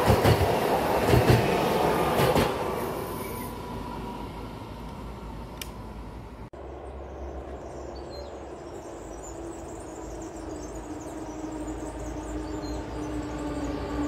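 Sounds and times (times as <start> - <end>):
electric locomotive hum: 0.0 - 14.0
small birds chirping: 6.6 - 14.0.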